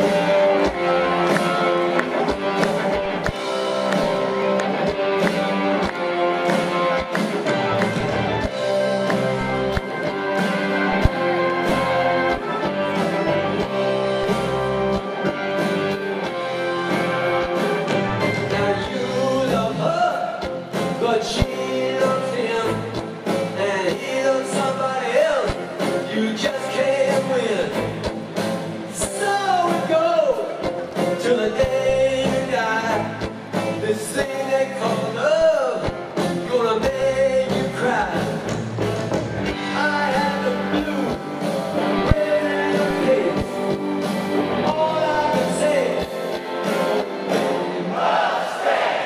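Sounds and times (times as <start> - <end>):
live rock band playing: 0.0 - 48.8
person singing: 18.2 - 27.9, 39.6 - 43.8, 44.5 - 46.3.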